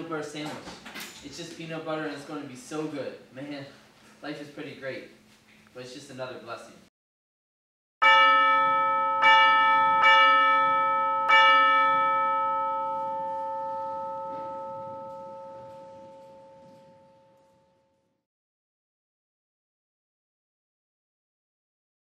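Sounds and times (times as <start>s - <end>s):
bell ringing: 8.0s - 17.8s.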